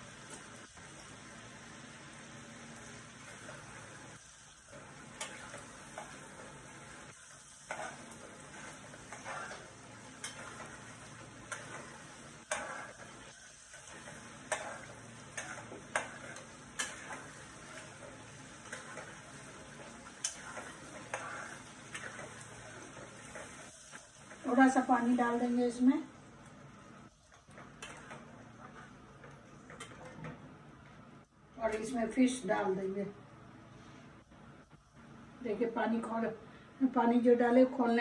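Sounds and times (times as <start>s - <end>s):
masala sizzling in a pan: 0.0s - 38.0s
spatula scraping a metal pan: 7.6s - 19.4s, 20.2s - 23.7s.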